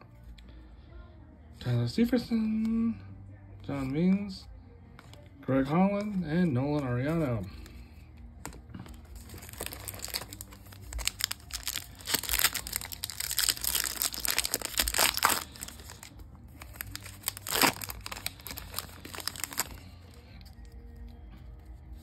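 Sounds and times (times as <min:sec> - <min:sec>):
foil wrapper crinkling: 0:09.1 - 0:20.6
foil wrapper ripping: 0:09.2 - 0:20.0.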